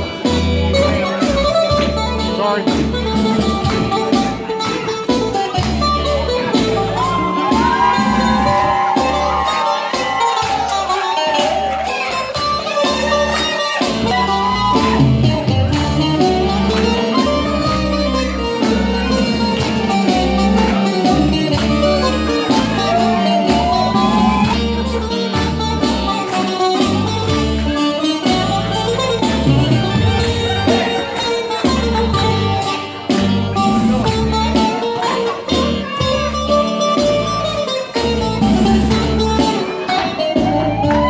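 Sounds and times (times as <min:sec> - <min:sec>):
plucked string instrument: 0:00.0 - 0:41.0
steady bass beat: 0:11.5 - 0:26.2.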